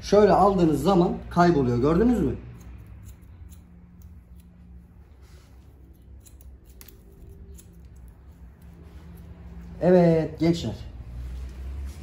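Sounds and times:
scissors snipping hair: 2.1 - 9.3.

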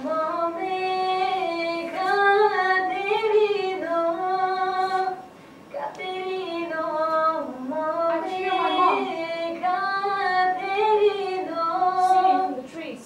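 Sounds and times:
woman singing unaccompanied: 0.0 - 13.0.

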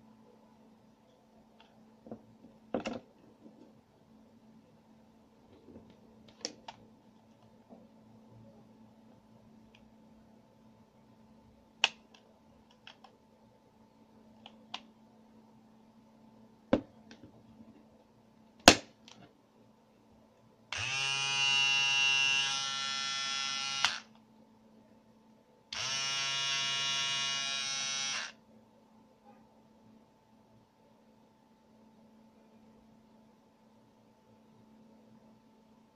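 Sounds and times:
trimmer motor buzzing: 20.7 - 24.1, 25.7 - 28.3.

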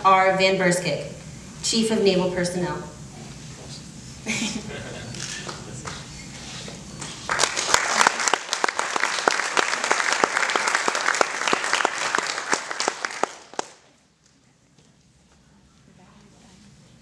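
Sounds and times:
audience applauding: 7.0 - 13.9.

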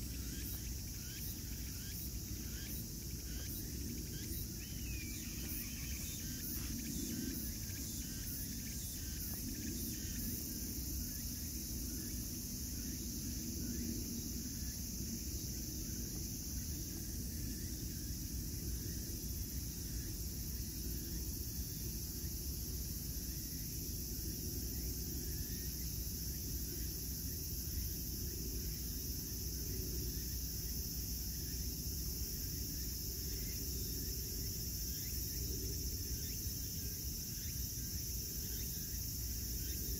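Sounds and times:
insects singing: 0.0 - 22.2.

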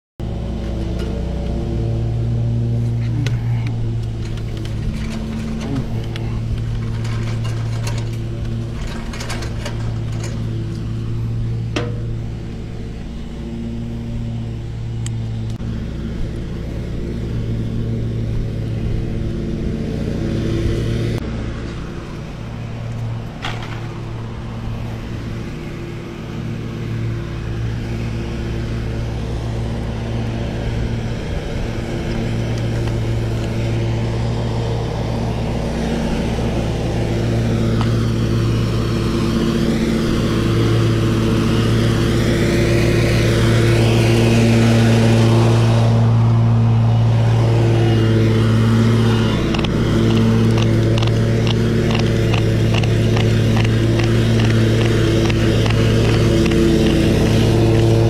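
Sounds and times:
engine idling: 0.2 - 20.2, 21.2 - 58.0
trimmer line clicking: 49.1 - 58.0.

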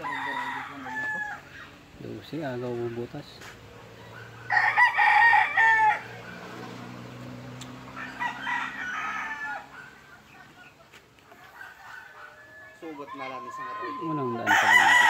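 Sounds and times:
rooster crowing: 0.0 - 1.7, 4.0 - 6.6, 7.8 - 10.4, 11.3 - 15.0.

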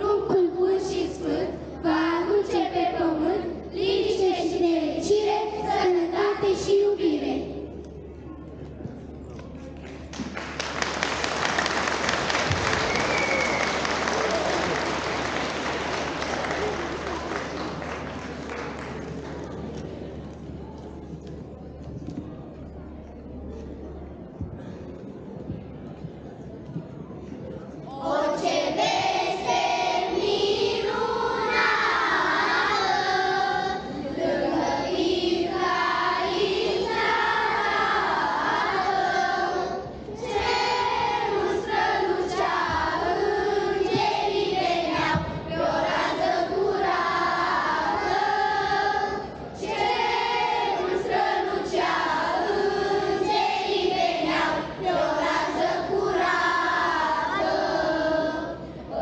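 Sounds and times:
children's choir singing a carol: 0.0 - 7.9, 27.7 - 59.0.

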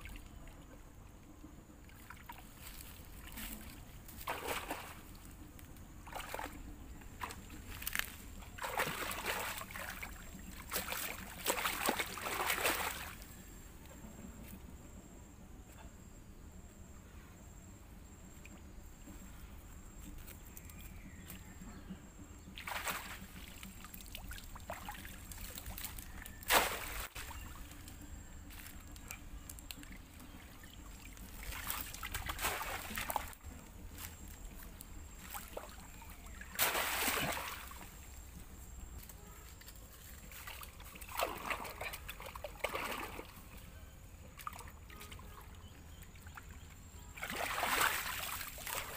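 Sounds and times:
shallow water sloshing and splashing: 1.8 - 13.4, 22.5 - 27.8, 28.5 - 33.5, 34.5 - 38.2, 40.1 - 43.6, 44.3 - 48.9.

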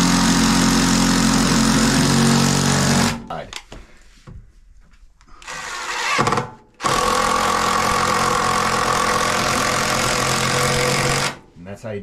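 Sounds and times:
cordless driver whining: 5.4 - 11.4.

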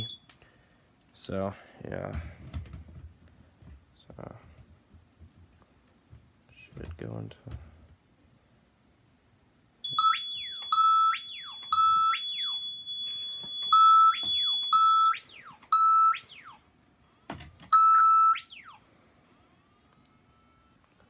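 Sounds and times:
electronic fire alarm siren: 9.8 - 16.6, 17.7 - 18.8.

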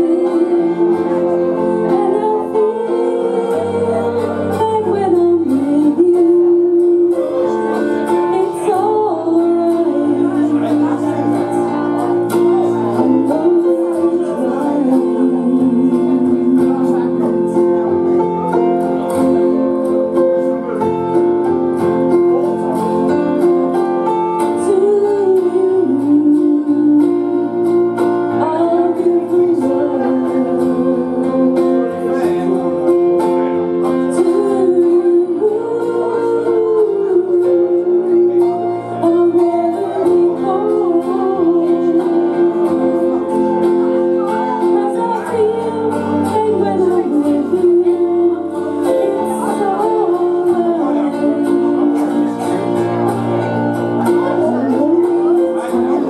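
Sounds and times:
recorded backing track: 0.0 - 56.0
woman singing karaoke: 0.0 - 56.0.

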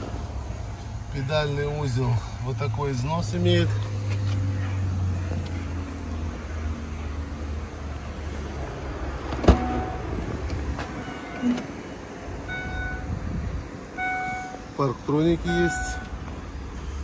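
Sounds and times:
parking sensor beeps: 9.4 - 10.0, 11.0 - 11.8, 12.4 - 13.2, 14.0 - 14.7, 15.4 - 16.2.

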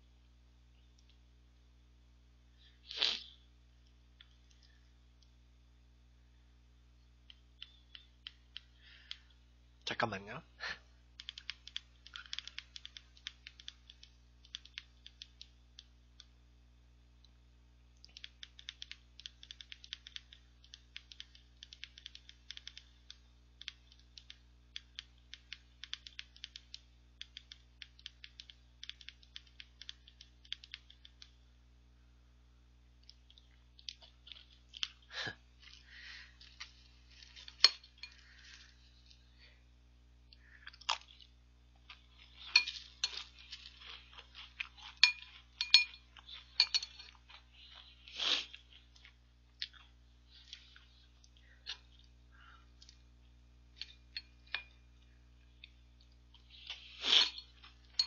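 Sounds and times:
thumb-typing on a smartphone: 11.2 - 16.3, 18.0 - 31.4
spoon clinking against bowl: 44.8 - 47.2.

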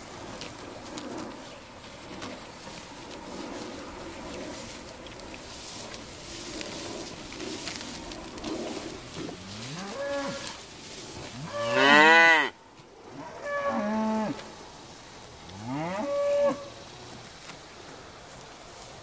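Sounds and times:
cattle mooing: 9.4 - 10.6, 11.4 - 12.6, 13.2 - 14.5, 15.5 - 16.7.

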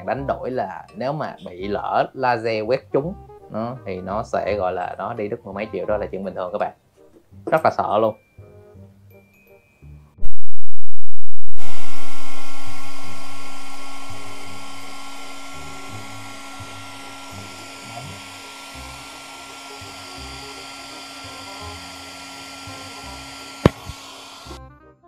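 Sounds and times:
background music: 0.0 - 10.2, 15.3 - 25.0
hair dryer blowing: 11.5 - 24.6.

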